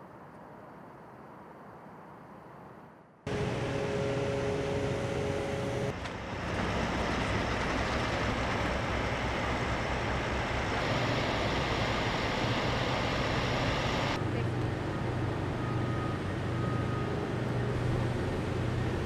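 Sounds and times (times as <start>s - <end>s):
steady hum tones: 3.3s - 6.0s, 7.2s - 16.8s
diesel trucks idling: 3.3s - 19.0s.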